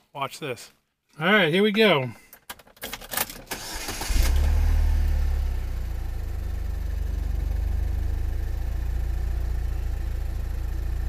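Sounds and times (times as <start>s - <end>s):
engine cranking: 3.3s - 4.5s
car engine idling: 3.7s - 11.0s.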